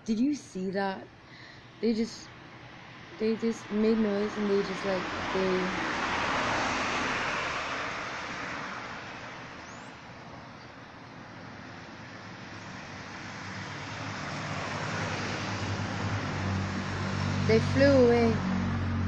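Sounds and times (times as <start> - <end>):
vehicles passing: 0.0 - 19.0.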